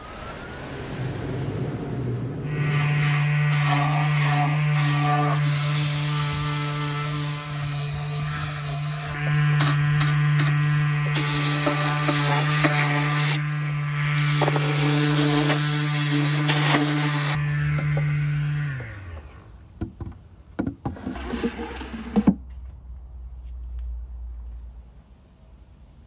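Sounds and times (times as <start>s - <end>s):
electric power tool running: 2.5s - 19.4s
sharp wooden knocks: 19.8s - 21.1s.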